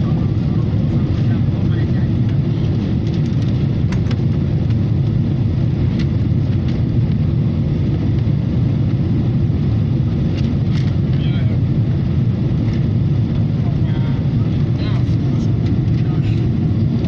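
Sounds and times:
airliner engine drone: 0.0s - 17.0s.

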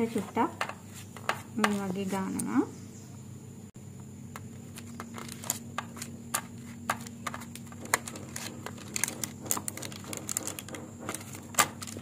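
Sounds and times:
steady low hum: 0.0s - 12.0s
paper crinkling: 4.7s - 12.0s
spatula scraping baking paper: 4.8s - 12.0s.

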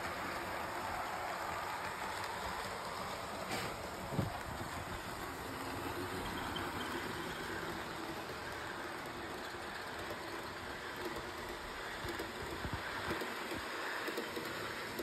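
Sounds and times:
model train wheels whirring on rails: 0.0s - 15.0s.

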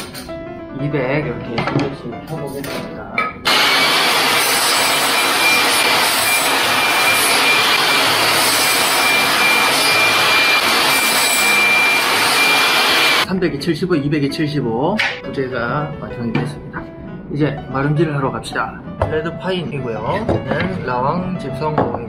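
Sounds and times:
table saw cutting wood: 3.4s - 13.3s
saw blade high whine: 3.5s - 13.3s.

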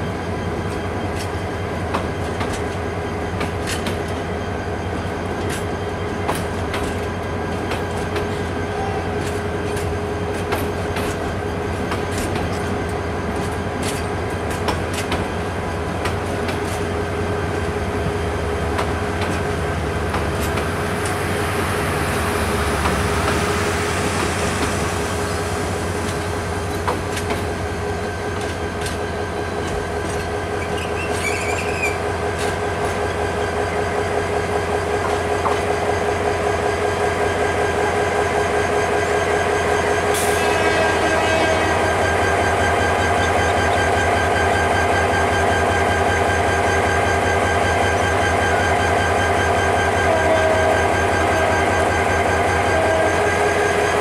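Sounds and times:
train wheels rumbling on rail: 0.0s - 54.0s
steady tone: 19.5s - 27.7s.

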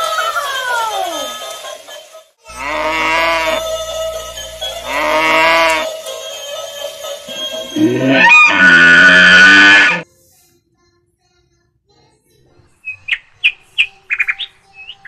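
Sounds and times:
falling electronic tone: 2.5s - 5.9s, 7.3s - 10.0s
steady electronic tone: 2.5s - 5.9s, 7.3s - 10.0s
electronic cow moos: 2.5s - 6.0s, 7.3s - 10.0s.

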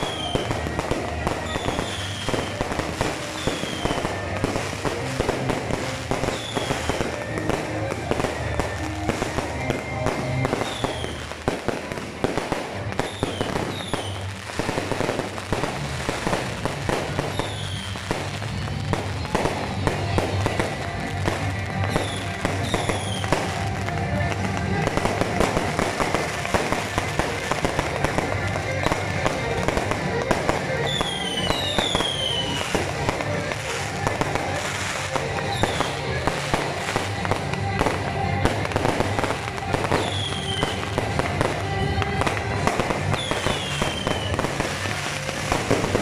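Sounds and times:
fireworks crackling and popping: 0.0s - 46.0s
firework whistles dropping in pitch: 30.8s - 32.8s, 43.2s - 44.4s.

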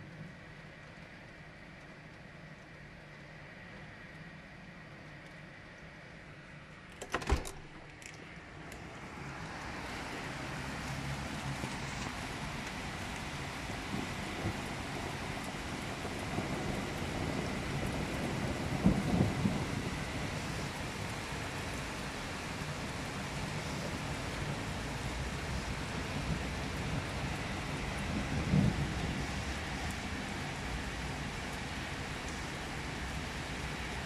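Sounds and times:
heavy rain downpour: 0.0s - 34.0s
thunder rumbles: 10.3s - 34.0s.

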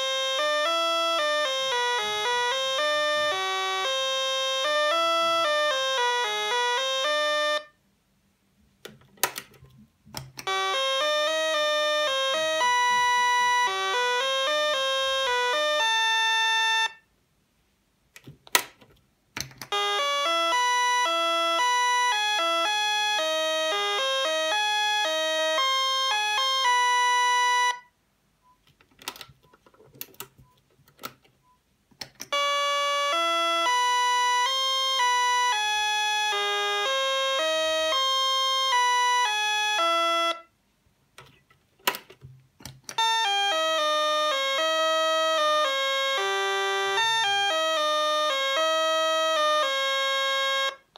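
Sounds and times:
electronic door chime melody: 10.4s - 17.0s, 19.7s - 28.6s, 32.2s - 40.5s.

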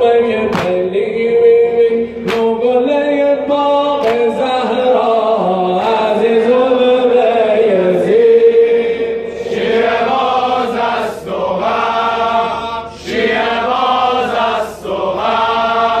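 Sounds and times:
men chanting in unison: 0.0s - 16.0s.

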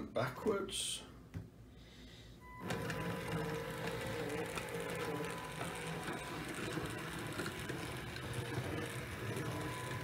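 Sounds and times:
model locomotive motor whirring: 2.6s - 10.0s.

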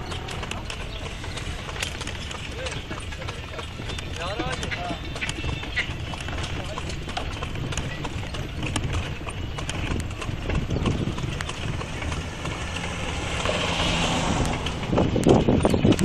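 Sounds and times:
carriage rumbling and rattling: 0.0s - 16.0s
horse hooves clip-clopping on asphalt: 0.0s - 16.0s
rushing noise: 11.6s - 15.4s.

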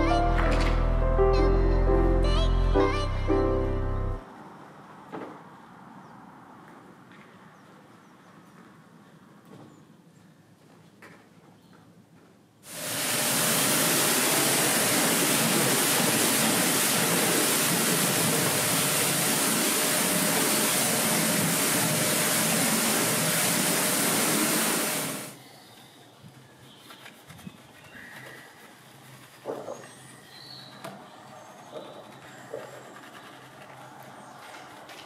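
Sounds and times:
pressure washer jet hissing: 12.7s - 25.4s.

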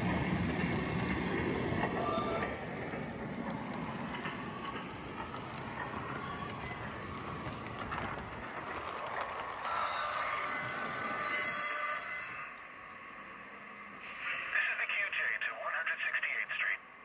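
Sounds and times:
model train rolling: 0.0s - 14.4s.

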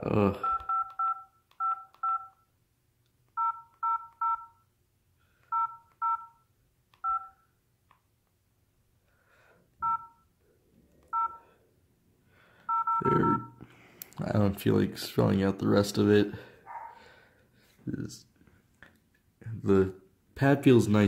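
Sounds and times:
phone keypad beeps: 0.4s - 2.4s, 3.4s - 4.6s, 5.5s - 6.4s, 7.0s - 7.4s, 9.8s - 10.2s, 11.1s - 11.4s, 12.7s - 13.6s.

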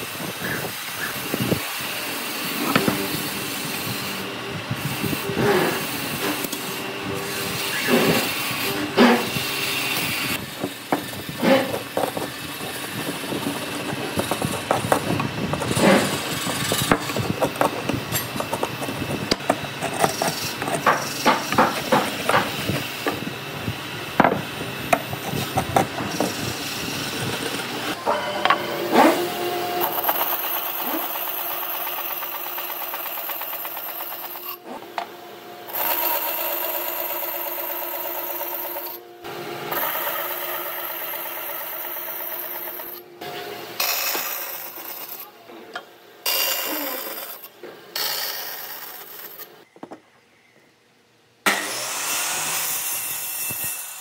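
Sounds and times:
bandsaw whining: 0.0s - 45.4s, 46.2s - 49.6s
hammer knocking on wooden boards: 20.9s - 22.6s.

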